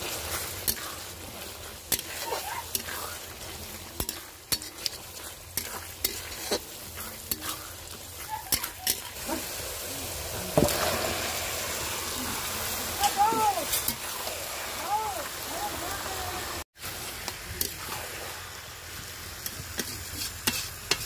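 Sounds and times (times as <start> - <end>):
oil sizzling: 0.0 - 21.0
spoon scraping a metal pan: 3.9 - 9.2, 19.7 - 21.0.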